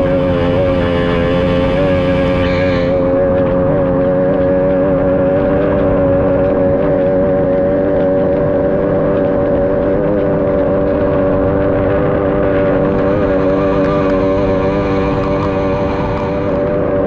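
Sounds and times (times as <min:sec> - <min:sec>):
outboard engine running: 0:00.0 - 0:17.0
wind: 0:00.0 - 0:17.0
water rushing: 0:11.0 - 0:17.0.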